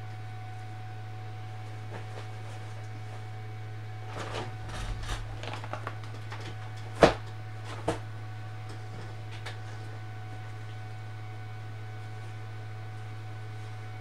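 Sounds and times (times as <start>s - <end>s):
objects rustling: 4.1s - 7.2s.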